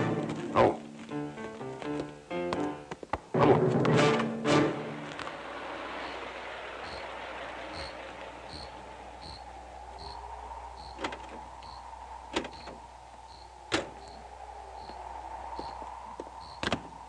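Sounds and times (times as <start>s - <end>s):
crickets chirping: 5.3s - 17.0s.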